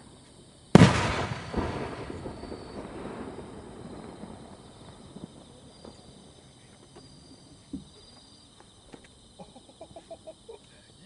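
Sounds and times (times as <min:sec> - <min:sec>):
firework shell boom: 0:00.8 - 0:03.3.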